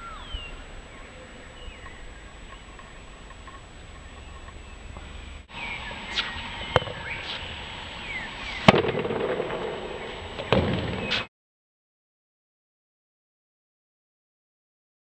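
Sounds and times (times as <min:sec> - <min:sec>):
birds chirping: 0:00.0 - 0:11.3.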